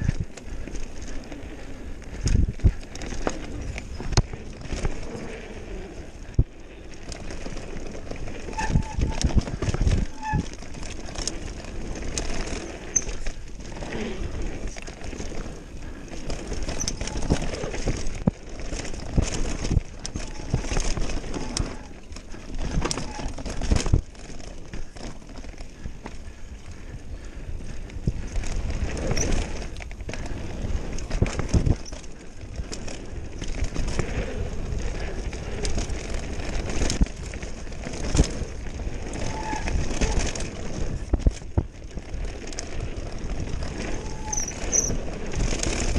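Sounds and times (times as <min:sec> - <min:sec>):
bike tyres running over dirt: 0:00.0 - 0:45.9
wind rumble on microphone: 0:00.0 - 0:45.9
bike knocks and rattles: 0:02.1 - 0:05.5, 0:06.2 - 0:45.9.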